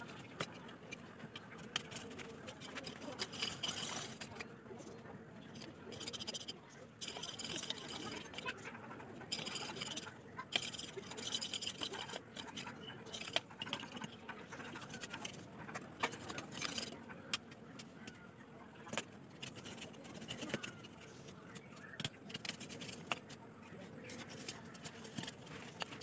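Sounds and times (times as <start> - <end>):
knife scraping bamboo strips: 0.0 - 4.5, 5.6 - 8.6, 9.3 - 17.0, 18.8 - 23.4, 24.1 - 26.0.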